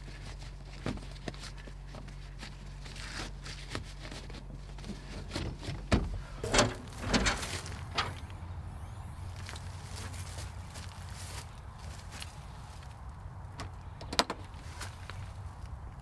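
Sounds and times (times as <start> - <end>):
metallic clunks and knocks: 5.4 - 8.4
handle lock clicking: 6.4 - 8.4.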